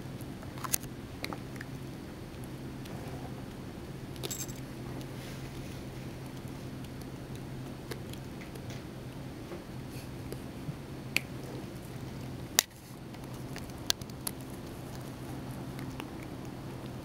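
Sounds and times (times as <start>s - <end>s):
faint low hum: 0.0s - 17.0s
cat sucking on toe: 11.8s - 17.0s.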